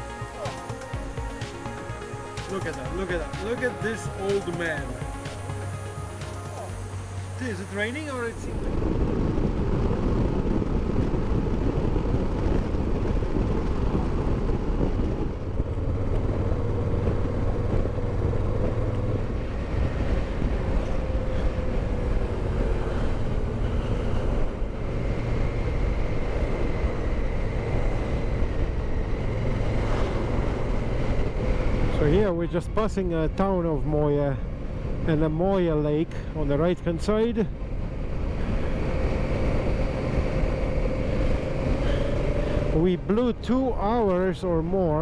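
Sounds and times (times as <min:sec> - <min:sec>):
motorcycle engine drone: 0:00.0 - 0:45.0
wind on microphone: 0:06.7 - 0:35.4.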